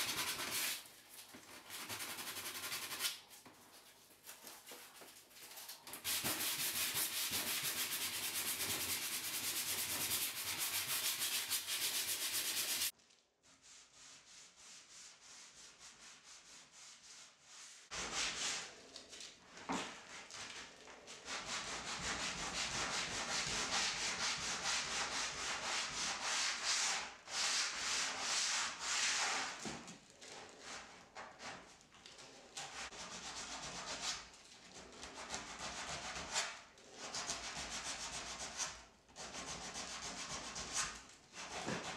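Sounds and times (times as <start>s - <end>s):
sandpaper rubbing on wood: 0.0s - 0.8s, 1.6s - 3.2s, 6.0s - 12.9s.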